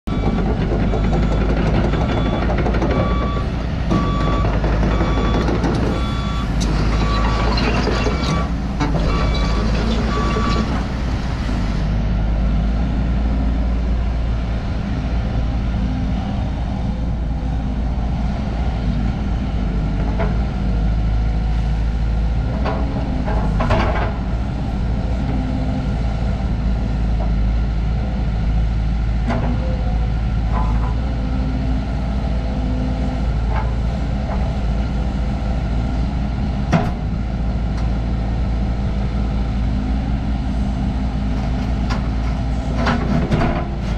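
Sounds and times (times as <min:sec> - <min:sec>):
warning alarm beeping: 0:00.1 - 0:07.5
excavator diesel engine working: 0:00.1 - 0:43.9.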